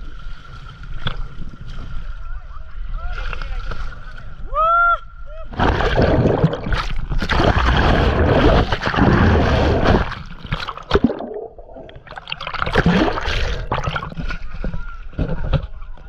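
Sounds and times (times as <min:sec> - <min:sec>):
river water splashing underwater: 0:05.5 - 0:15.3.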